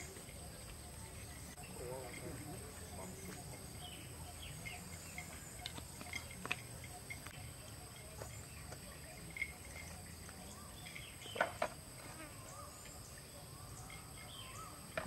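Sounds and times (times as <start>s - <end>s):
high insect drone: 0.0s - 15.0s
faint bird chirps: 12.2s - 15.0s.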